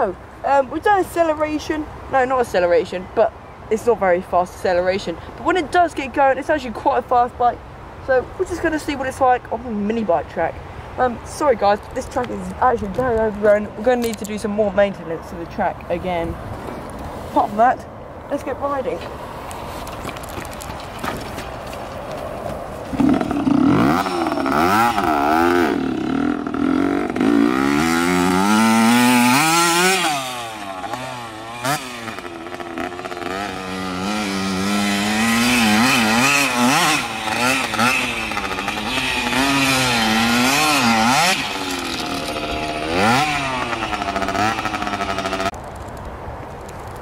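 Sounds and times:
two-stroke minibike engine revving: 22.9 - 45.6.

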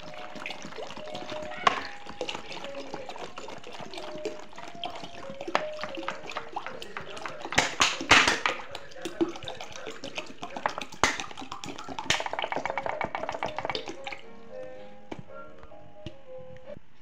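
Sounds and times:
water pouring into metal pot: 0.0 - 14.3.

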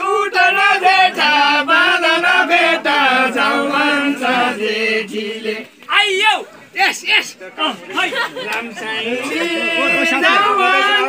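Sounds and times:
men singing unaccompanied folk tune: 0.0 - 5.8, 8.6 - 11.0.

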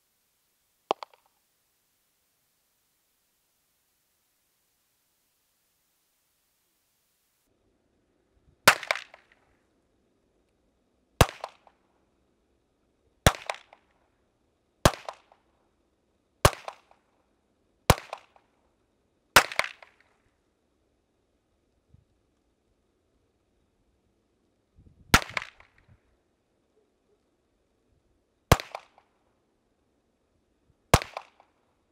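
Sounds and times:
pistol shots with echo: 28.5 - 29.0, 31.0 - 31.5.

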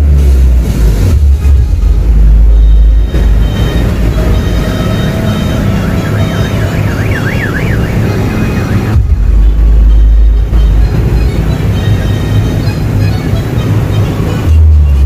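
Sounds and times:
loud music with heavy bass: 0.0 - 15.0
siren-like warbling tone: 2.4 - 11.9.

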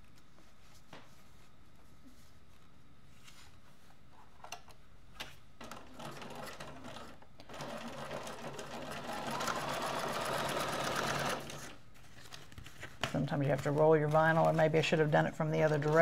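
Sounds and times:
sewing machine stitching: 5.6 - 11.8.

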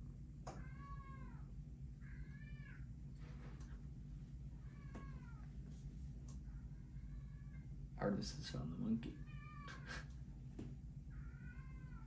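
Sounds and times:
faint low hum: 0.0 - 12.0
cat meowing: 4.6 - 5.5, 11.1 - 12.0.

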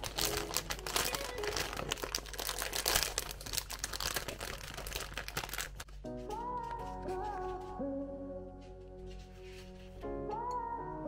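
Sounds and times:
plastic bag crinkling: 0.0 - 6.0.

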